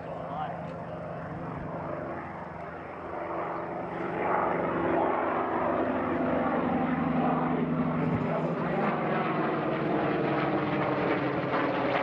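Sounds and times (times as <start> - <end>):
propeller plane engine droning: 0.0 - 12.0.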